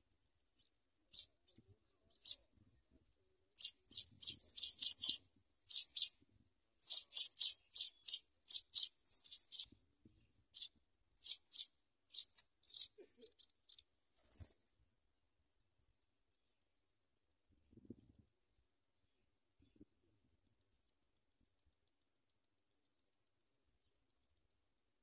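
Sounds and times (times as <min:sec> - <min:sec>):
nestlings begging calls: 0:03.6 - 0:06.2, 0:06.8 - 0:09.7, 0:10.6 - 0:13.4.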